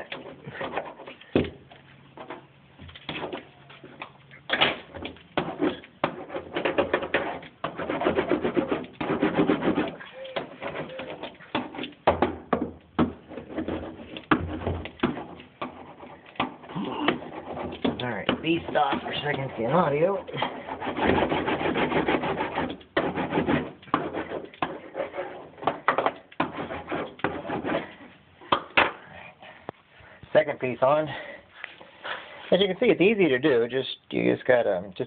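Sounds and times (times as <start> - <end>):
roller scraping on mat: 4.8 - 28.1
low pitched cooing sound: 10.0 - 11.2.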